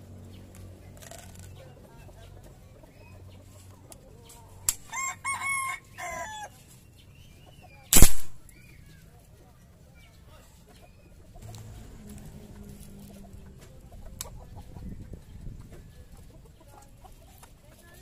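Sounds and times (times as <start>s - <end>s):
rooster crowing: 4.9s - 6.5s
air rifle shot: 7.9s - 8.4s.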